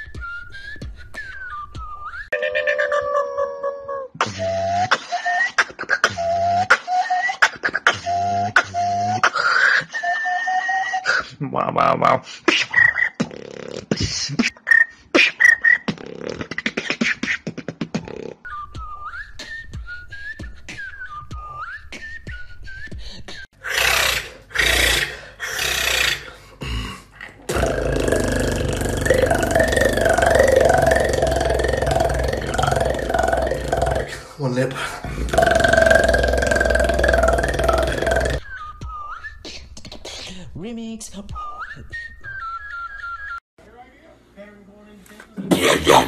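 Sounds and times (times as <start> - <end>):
whistled tones: 0.0 - 2.5, 4.2 - 5.5, 6.1 - 9.2, 18.5 - 23.5, 38.4 - 39.8, 41.3 - 43.4
beatbox mouth clicks: 12.5 - 18.5, 27.2 - 34.2, 35.1 - 38.4, 39.4 - 40.4
buzzing lip roll: 27.5 - 34.2, 35.1 - 38.4.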